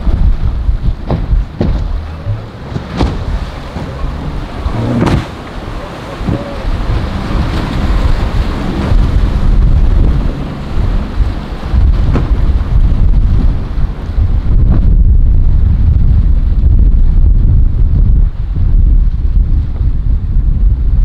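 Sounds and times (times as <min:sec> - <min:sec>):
boat hull slamming into waves: 0:00.0 - 0:15.0
crashing surf: 0:00.0 - 0:15.7
outboard motors running hard: 0:00.0 - 0:18.7
wind buffeting microphone: 0:00.0 - 0:21.0.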